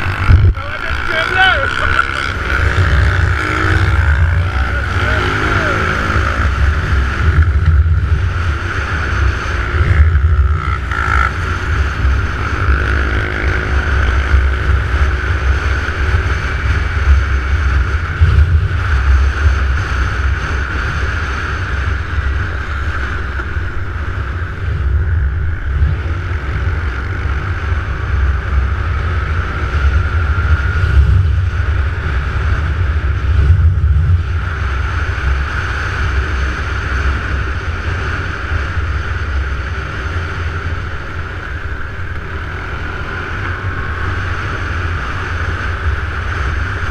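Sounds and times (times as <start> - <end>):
engine rising in pitch: 0.0 - 7.9
motorbike engine drone: 0.0 - 46.9
wind buffeting microphone: 0.0 - 46.9.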